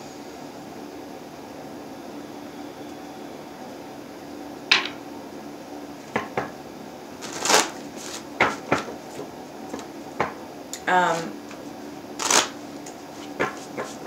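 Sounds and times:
cards shuffling: 7.2s - 8.9s, 12.2s - 12.6s, 13.2s - 14.0s.

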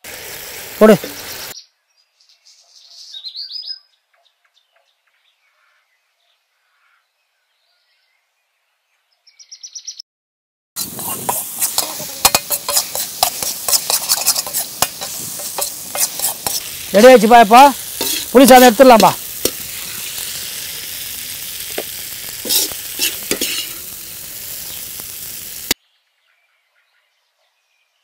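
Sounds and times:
faint bird chirps: 1.6s - 10.0s
steel ladle scraping iron pan: 10.8s - 16.9s, 17.8s - 24.0s.

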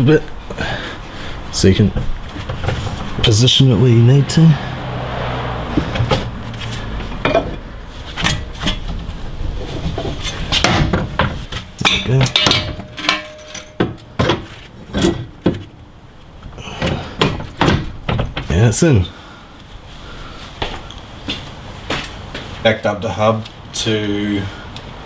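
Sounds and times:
metallic knocks and clinks: 10.6s - 15.6s.

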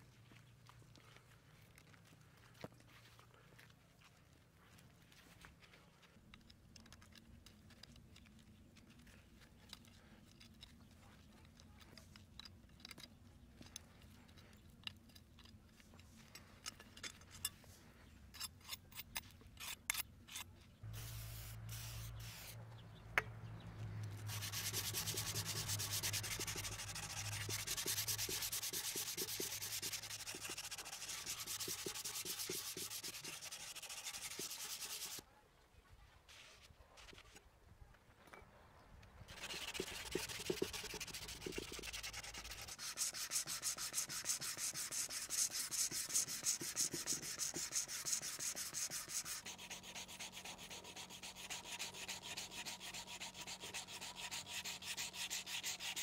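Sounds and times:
abrasive paper rubbing blade: 24.1s - 35.2s, 39.3s - 56.0s.

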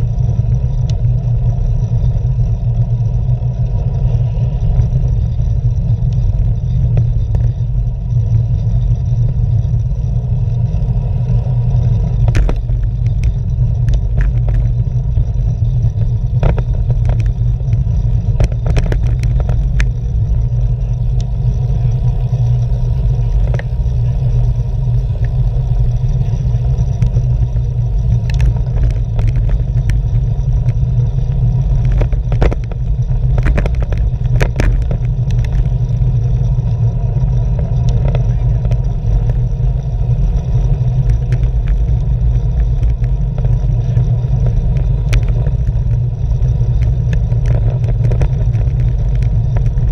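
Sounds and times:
wind rumble while cycling: 0.0s - 49.9s
sharp clicks and knocks: 12.2s - 20.5s, 28.0s - 30.8s, 31.6s - 35.8s, 40.5s - 49.9s.

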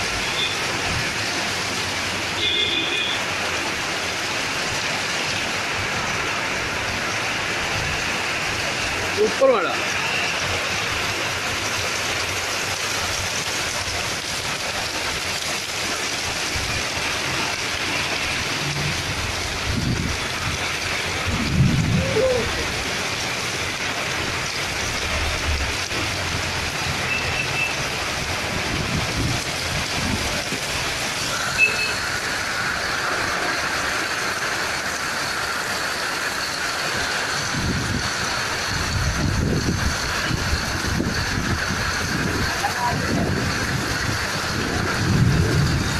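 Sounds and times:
heavy rain pouring: 0.0s - 45.9s
low rumbles: 18.3s - 23.2s.

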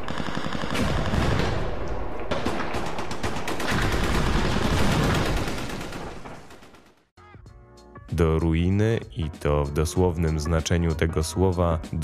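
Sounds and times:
machine-gun and rifle fire: 0.0s - 7.0s.

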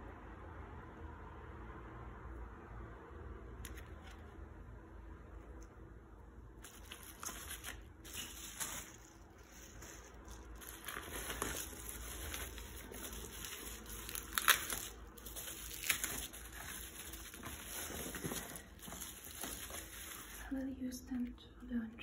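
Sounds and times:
bubble wrap crackles: 6.6s - 21.4s
bubble wrap crinkling: 6.6s - 21.4s.

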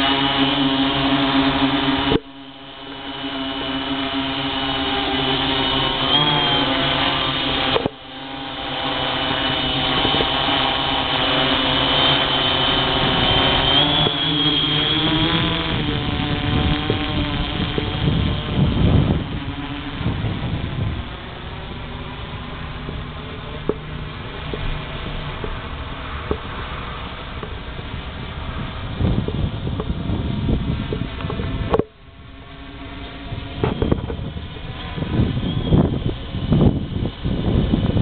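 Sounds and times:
multicopter propellers buzzing: 0.0s - 38.0s
low rumble: 8.0s - 38.0s.

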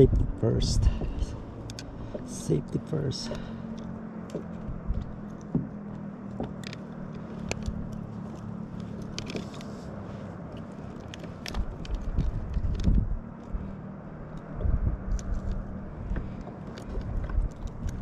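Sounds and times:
low engine hum: 0.0s - 18.0s
sharp clicks and knocks: 3.7s - 9.7s.

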